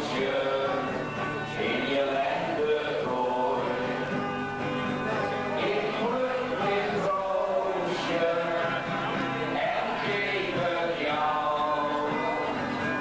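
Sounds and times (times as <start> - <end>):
music with singing: 0.0 - 13.0.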